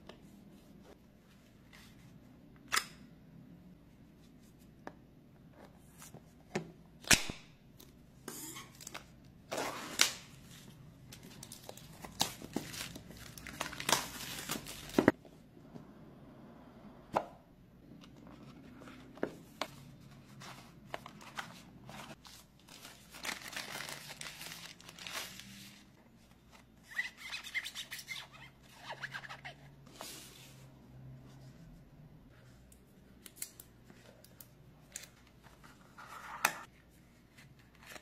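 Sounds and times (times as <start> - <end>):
plastic film rustling: 22.0 - 25.8.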